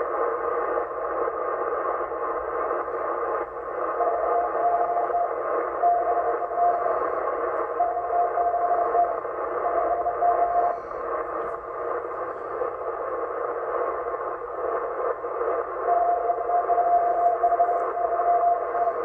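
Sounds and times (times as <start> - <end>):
radio receiver hiss: 0.0 - 19.0
morse code beep: 4.0 - 11.0, 15.8 - 19.0.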